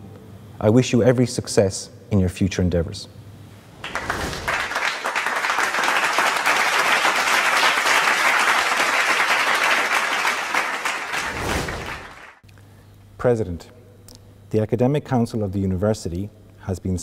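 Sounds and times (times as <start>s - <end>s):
crowd applauding: 3.8s - 12.4s.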